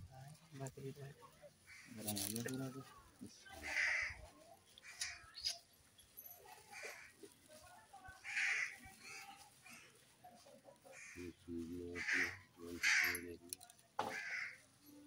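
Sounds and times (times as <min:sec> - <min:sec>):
bird cawing: 0:01.7 - 0:02.0, 0:04.8 - 0:05.5, 0:08.2 - 0:10.0, 0:12.0 - 0:13.2, 0:14.0 - 0:14.6.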